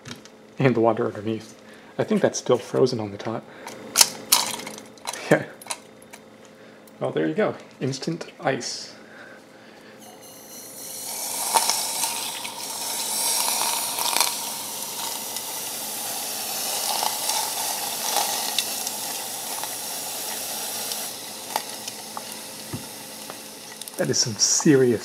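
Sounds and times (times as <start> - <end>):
compressed air can hissing: 10.0 - 25.0
sizzling and crackling in water: 10.2 - 25.0.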